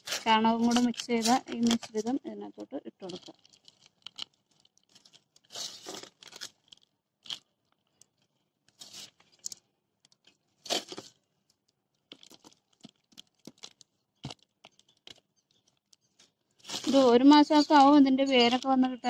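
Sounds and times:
soil scraping and crumbling: 0.0 - 7.5, 8.8 - 9.6, 10.6 - 11.2, 12.1 - 19.0.

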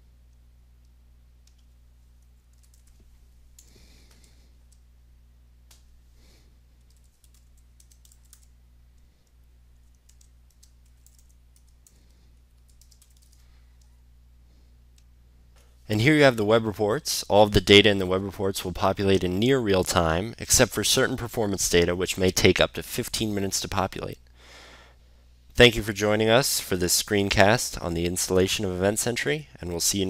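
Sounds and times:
steady low hum: 0.0 - 30.0
keyboard typing: 1.5 - 4.8, 6.8 - 8.5, 9.2 - 14.0.

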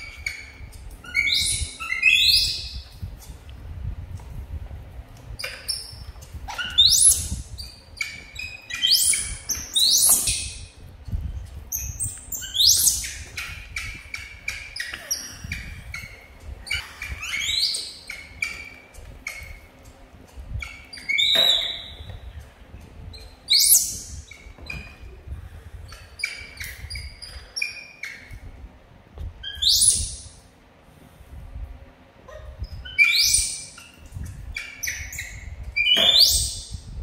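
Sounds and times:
baby monkey chirps and squeals: 0.0 - 2.8, 5.4 - 10.7, 11.7 - 19.6, 20.6 - 22.1, 23.1 - 24.5, 26.0 - 28.4, 29.4 - 30.3, 32.4 - 36.8
baby monkey shrieks: 0.1 - 2.8, 5.4 - 10.6, 11.7 - 19.6, 20.6 - 22.1, 23.5 - 24.4, 32.3 - 36.8.

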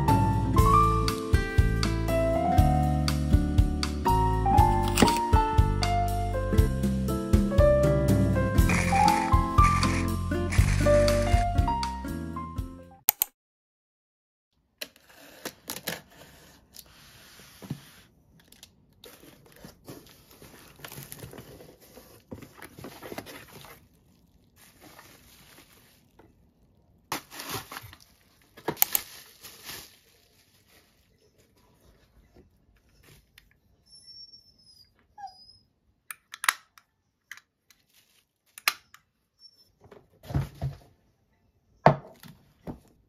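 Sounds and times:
tearing: 8.6 - 11.5, 27.1 - 28.2
bubble wrap crinkling: 8.6 - 11.6, 18.4 - 31.9, 37.7 - 38.6
cardboard rustling: 8.6 - 11.6, 19.1 - 23.9, 24.6 - 26.2, 27.1 - 32.2.

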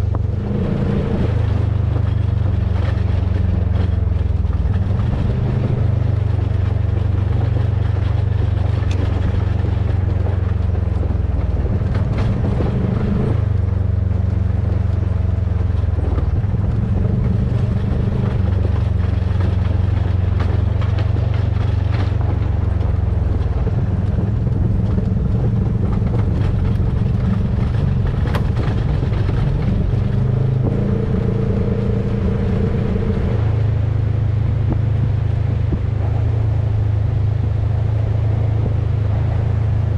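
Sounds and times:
gravel ticks: 0.0 - 39.9
off-road vehicle engine running: 0.0 - 39.9.

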